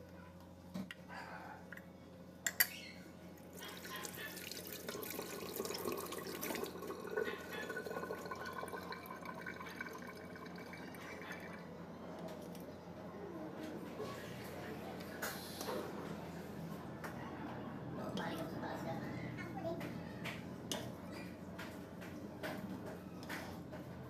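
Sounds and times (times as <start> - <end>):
running water dripping: 3.6 - 11.6.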